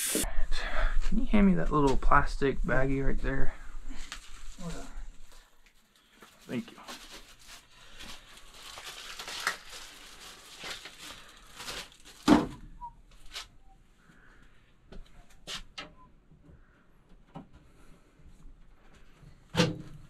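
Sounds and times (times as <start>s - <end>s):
plastic bag crinkling and tearing: 4.0s - 12.6s.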